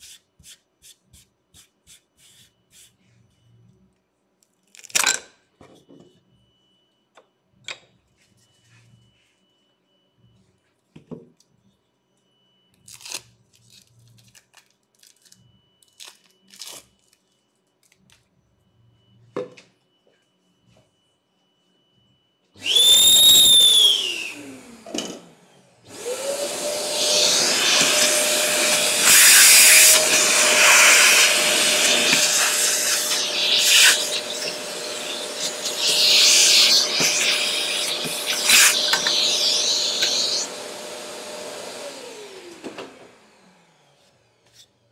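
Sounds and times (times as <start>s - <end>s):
vacuum cleaner running: 22.6s - 44.4s.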